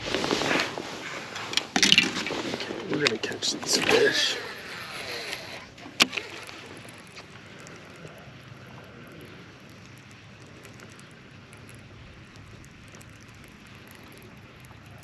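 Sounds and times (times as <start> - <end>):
fishing reel ticking: 3.0 - 15.0.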